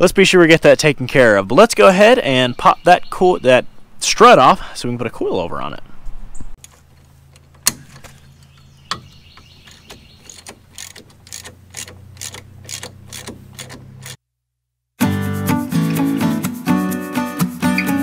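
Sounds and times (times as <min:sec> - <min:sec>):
hand ratchet clicking: 0:06.6 - 0:14.2
guitar music: 0:15.0 - 0:18.0.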